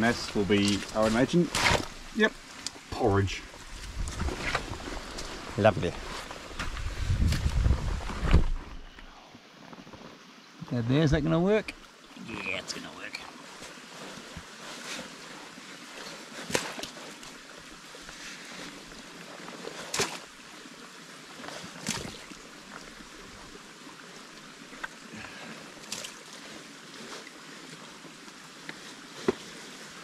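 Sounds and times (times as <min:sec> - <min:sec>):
shovel digging wet mud: 0:00.3 - 0:01.9, 0:16.4 - 0:17.0, 0:19.8 - 0:20.2.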